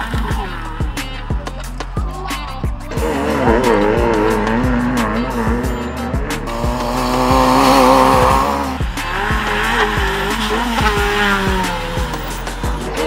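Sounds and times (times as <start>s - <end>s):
music with steady drum beat: 0.0s - 13.0s
racing car engine: 0.0s - 13.0s.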